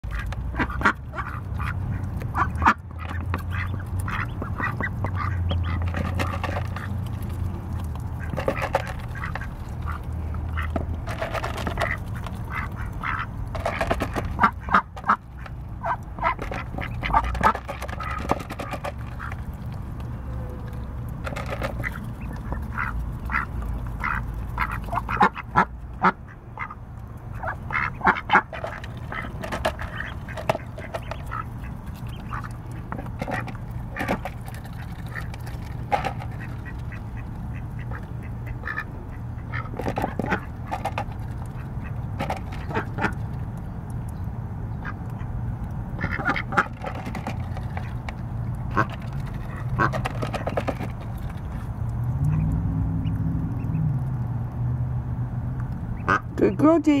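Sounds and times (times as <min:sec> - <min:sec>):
ducks quacking: 0:00.0 - 0:19.5, 0:21.2 - 0:43.3, 0:44.8 - 0:48.0, 0:48.6 - 0:51.6, 0:55.9 - 0:56.6
low background rumble: 0:00.0 - 0:57.0.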